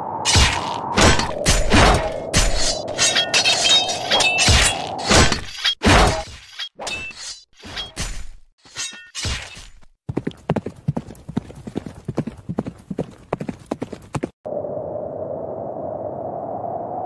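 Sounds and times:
swords clanging metal on metal: 0.3 - 9.8
horse hoofbeats: 10.1 - 14.4.

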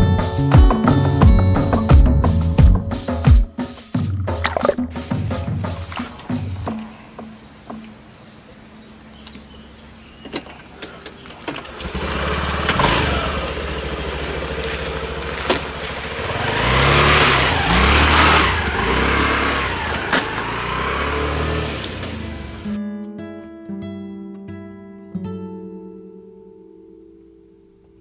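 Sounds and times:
small motorbike engine revving: 9.5 - 22.8.

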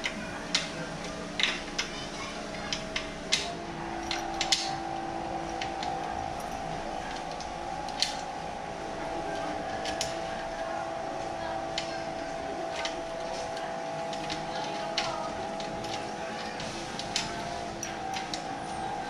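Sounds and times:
steady hum: 0.0 - 19.0
small metal clicks and clinks: 2.6 - 4.8.

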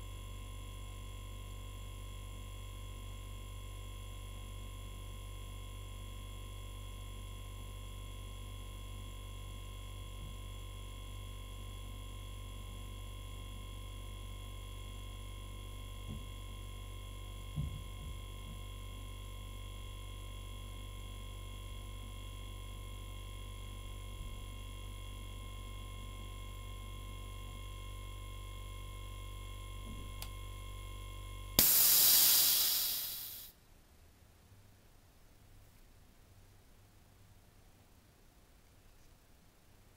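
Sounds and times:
compressor low hum: 23.6 - 33.5.

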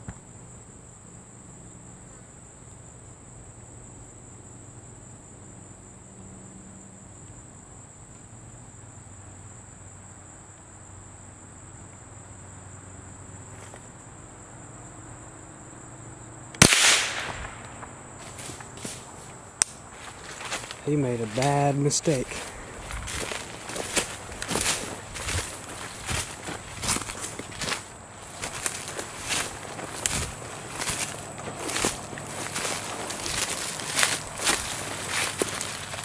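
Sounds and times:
insects droning: 0.0 - 36.0
rifle shot: 16.6 - 17.9
leaves rustling and crackling: 16.6 - 36.0.

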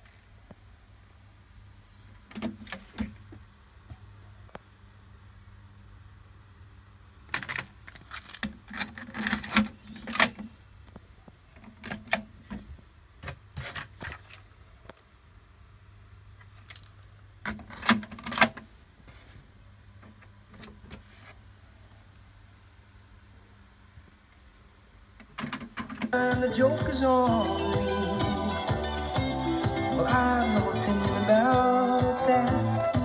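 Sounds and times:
cassette deck clicks and rattles: 7.3 - 10.5, 11.6 - 14.2, 25.2 - 26.2.

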